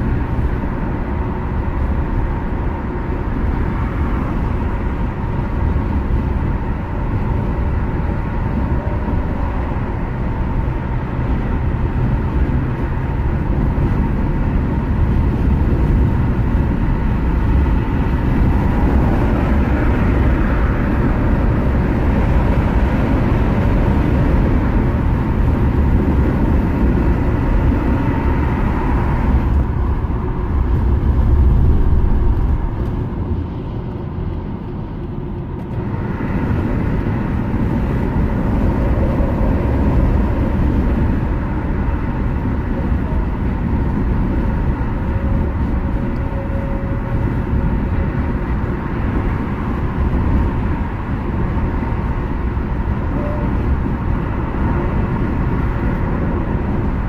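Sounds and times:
car engine at highway speed: 0:00.0 - 0:57.0
car tyre road noise: 0:00.0 - 0:57.0.

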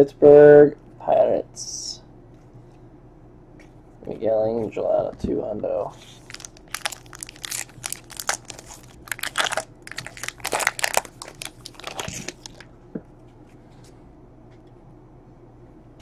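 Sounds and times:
plastic wrapper crinkling: 0:06.0 - 0:12.7.

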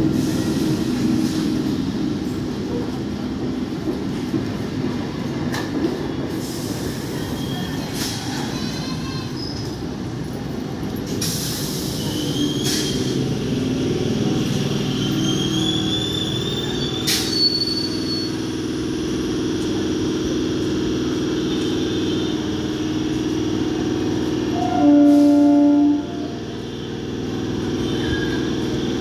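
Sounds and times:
low train rumble: 0:00.0 - 0:29.0
train humming: 0:00.0 - 0:29.0
train brakes squealing: 0:06.0 - 0:10.0, 0:11.1 - 0:13.4, 0:14.2 - 0:18.7, 0:24.5 - 0:26.5, 0:27.4 - 0:29.0
sharp air hiss: 0:11.1 - 0:13.3.

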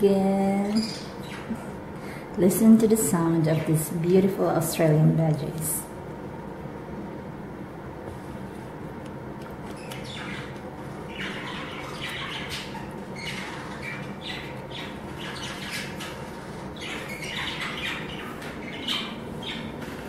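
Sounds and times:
low background hum: 0:00.0 - 0:20.0
budgerigars chattering: 0:09.8 - 0:10.5, 0:11.1 - 0:19.7.

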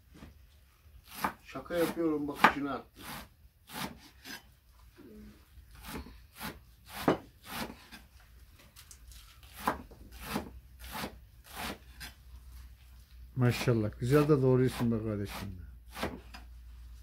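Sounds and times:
knife chopping greens on board: 0:01.0 - 0:04.0, 0:05.8 - 0:08.0, 0:09.4 - 0:12.1, 0:14.7 - 0:16.4.

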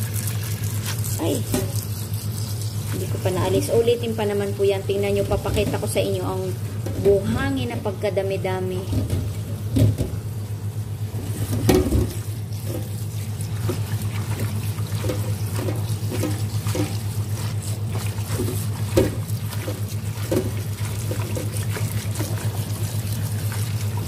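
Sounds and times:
tap water running into a basin: 0:00.0 - 0:07.2, 0:11.1 - 0:24.0
steady low hum: 0:00.0 - 0:24.0
water splashes: 0:11.2 - 0:24.0
hands swishing wet leaves: 0:12.2 - 0:24.0.

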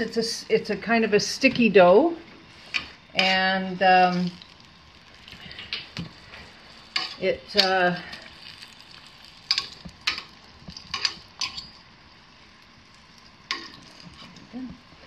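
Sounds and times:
deep-frying sizzle in oil: 0:00.0 - 0:15.0.

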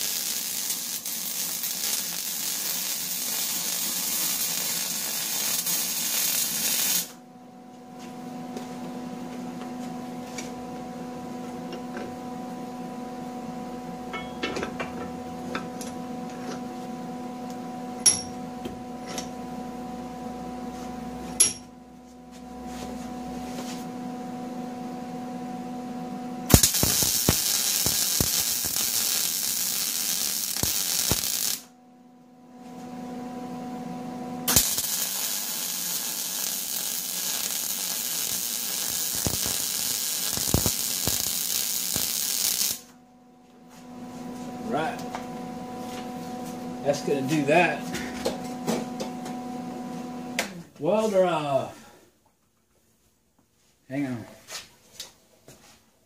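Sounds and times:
welder crackling sizzle: 0:00.0 - 0:07.2, 0:26.5 - 0:31.7, 0:34.4 - 0:43.0
electrical hum: 0:00.0 - 0:52.1.

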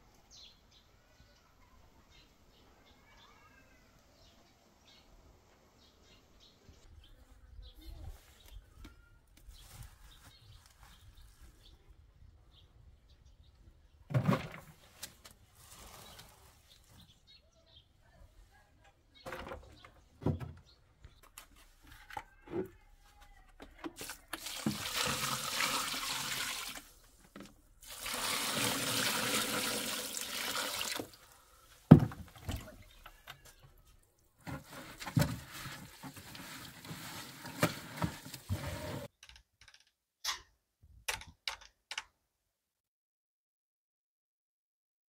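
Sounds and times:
water pouring: 0:24.0 - 0:27.0, 0:27.8 - 0:31.4.

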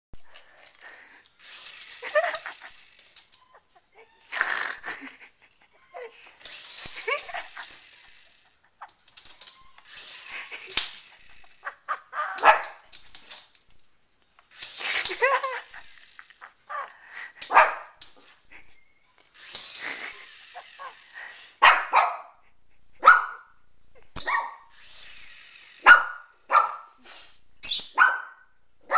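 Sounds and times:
small dog barking and yipping: 0:11.6 - 0:12.9, 0:16.7 - 0:18.0, 0:21.6 - 0:22.4, 0:23.0 - 0:23.6, 0:24.2 - 0:24.7, 0:25.8 - 0:27.0, 0:27.6 - 0:28.9.

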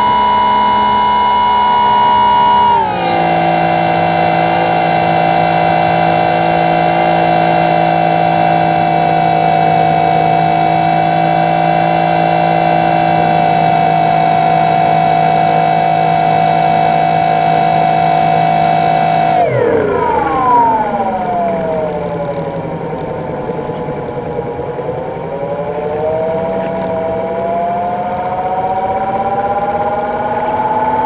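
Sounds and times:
electric propeller motor whine: 0:00.0 - 0:23.2.

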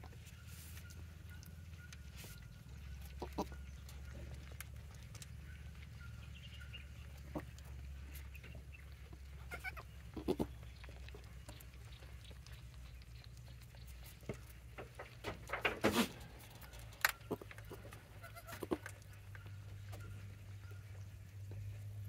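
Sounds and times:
goats bleating softly: 0:03.1 - 0:03.6, 0:09.3 - 0:10.7, 0:17.2 - 0:19.2.

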